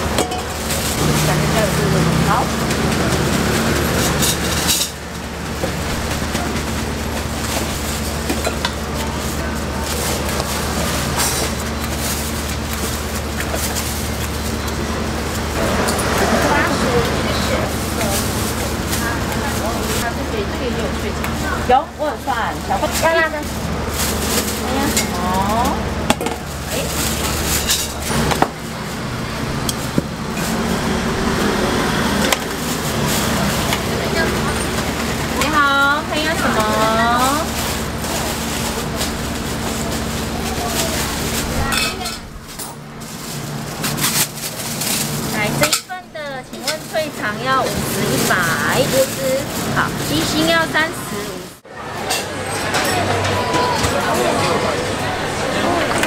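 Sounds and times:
busy food stall din: 0.0s - 56.0s
night market background hum: 0.0s - 56.0s
steel kitchenware clinking: 41.6s - 42.8s.

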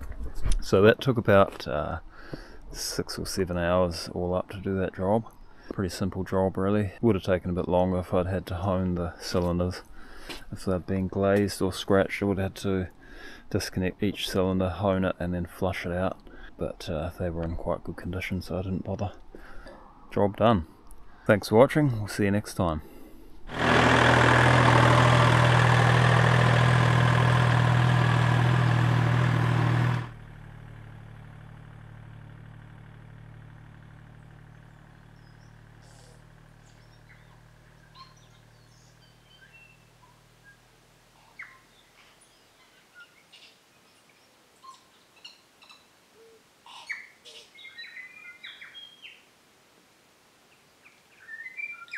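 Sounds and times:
tractor diesel engine running: 22.9s - 41.2s
birds chirping: 34.1s - 49.3s, 50.5s - 51.9s.

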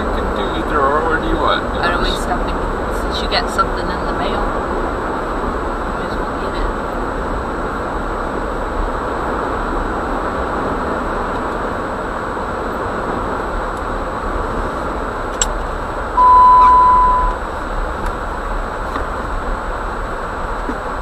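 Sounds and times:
vehicle road and engine noise: 0.0s - 21.0s
electronic beep: 16.2s - 17.4s.

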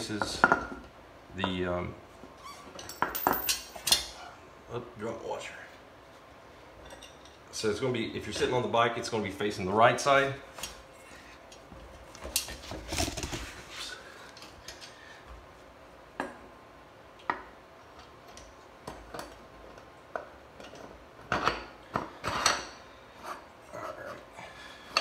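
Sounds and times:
metal parts clinking: 2.8s - 4.1s.

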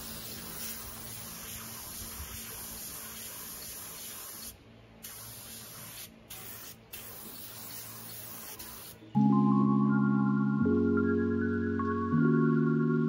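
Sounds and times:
spray gun hissing: 0.0s - 9.0s.

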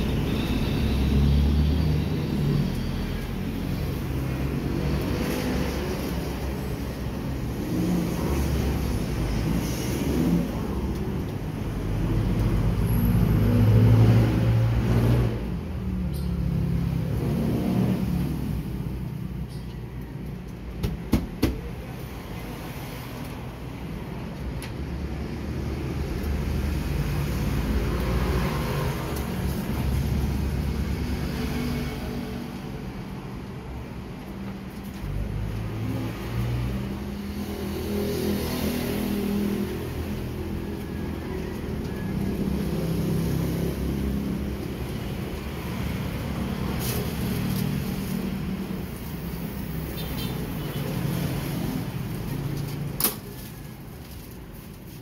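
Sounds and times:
passing cars rumbling: 25.1s - 54.3s.

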